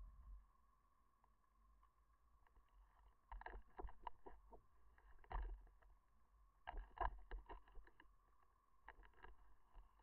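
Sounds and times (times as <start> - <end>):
faint steady hum: 0.0 - 10.0
underwater clicks and knocks: 6.6 - 8.1.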